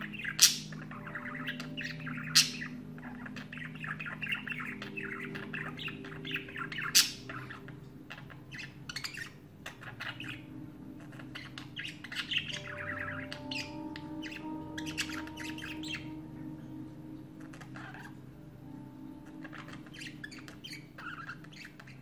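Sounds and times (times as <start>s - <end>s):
budgerigars warbling and chattering: 0.0s - 22.0s
sharp bird squawks: 17.4s - 18.2s.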